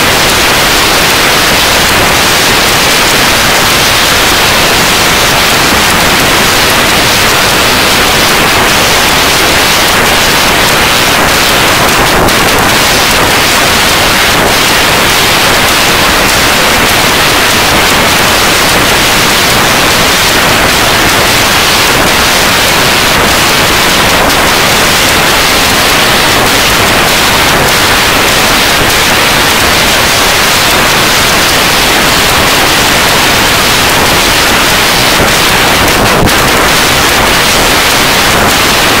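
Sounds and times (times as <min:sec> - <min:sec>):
loud static hiss: 0:00.0 - 0:39.0.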